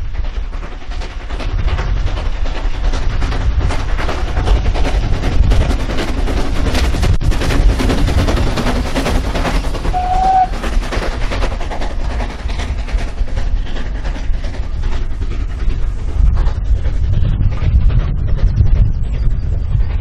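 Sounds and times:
low rumble: 0.0 - 20.0
steam locomotive exhaust beats: 0.0 - 20.0.

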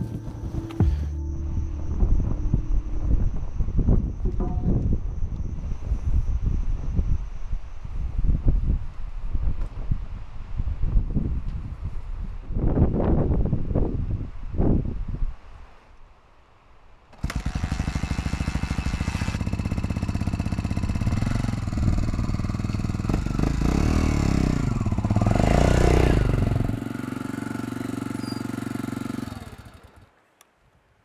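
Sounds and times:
motorcycle engine revving: 17.2 - 30.1.

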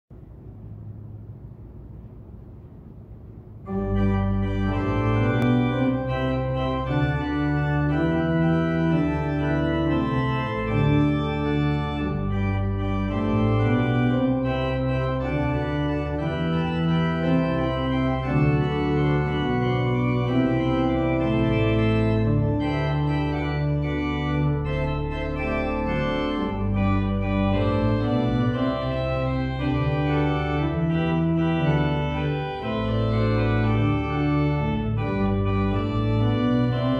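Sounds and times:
organ playing slow chords: 3.6 - 36.9.

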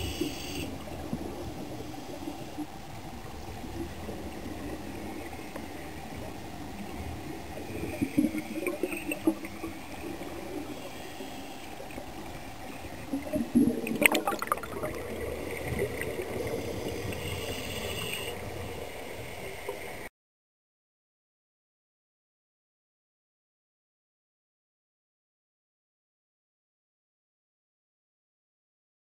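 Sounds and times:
regulator bubbles gurgling: 0.0 - 20.1
underwater hiss: 0.0 - 20.1.

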